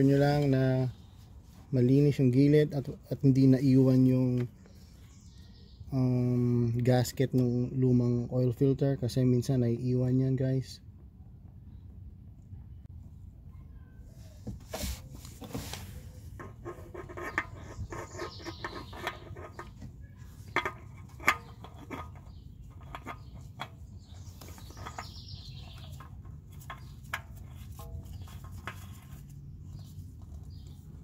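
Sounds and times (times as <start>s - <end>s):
oil filter clicking and rubbing: 14.4s - 31.0s.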